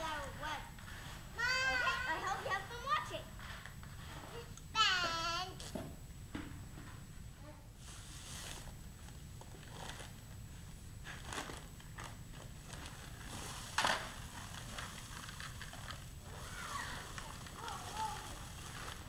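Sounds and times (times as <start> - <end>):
paper sack crinkling and rustling: 11.0 - 19.0.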